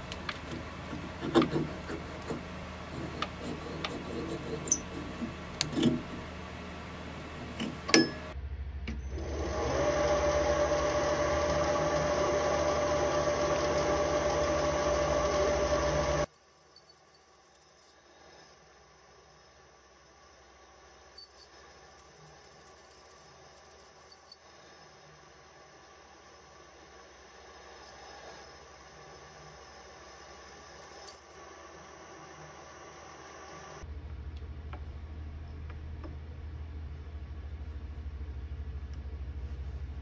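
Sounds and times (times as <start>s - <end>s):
lathe motor whining: 9.0s - 16.3s, 25.0s - 33.8s
metal parts clicking and knocking: 16.3s - 18.0s, 21.1s - 24.4s, 30.7s - 31.4s.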